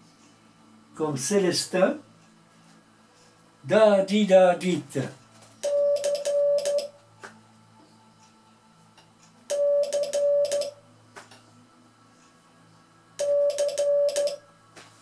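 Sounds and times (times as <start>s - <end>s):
morse code beeps: 5.6s - 6.9s, 9.5s - 10.8s, 13.2s - 14.4s.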